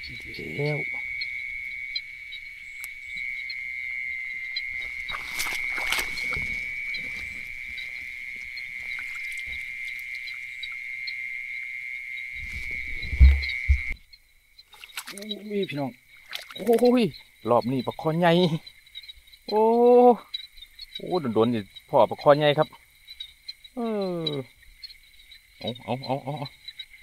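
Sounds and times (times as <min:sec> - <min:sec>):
night insects trilling: 0:00.0 - 0:27.0
vegetation rustling: 0:04.7 - 0:10.4, 0:12.4 - 0:14.0
heavy low thump: 0:12.4 - 0:14.0.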